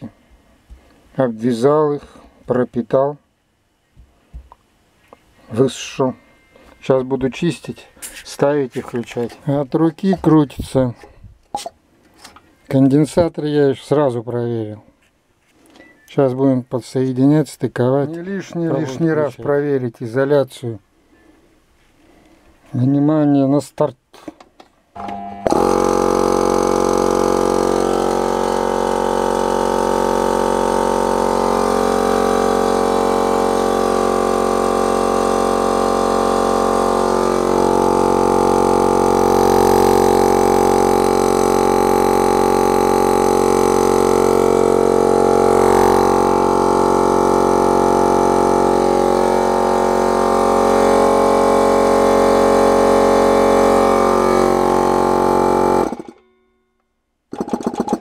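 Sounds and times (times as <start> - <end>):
air compressor motor humming: 25.0 - 56.2.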